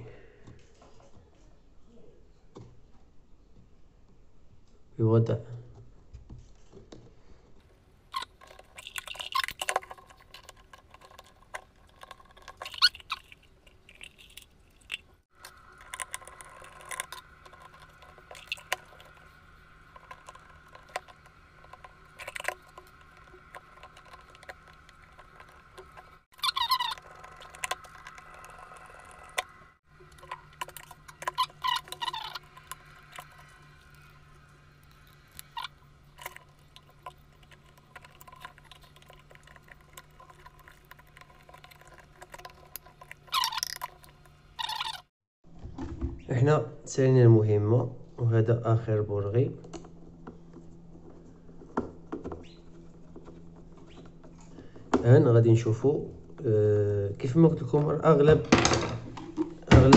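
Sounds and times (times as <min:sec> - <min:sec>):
plastic parts clicking and scraping: 0:06.3 - 0:45.0.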